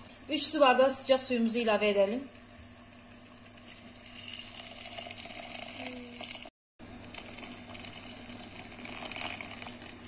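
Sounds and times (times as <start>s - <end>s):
water pouring into pot: 3.4s - 10.0s.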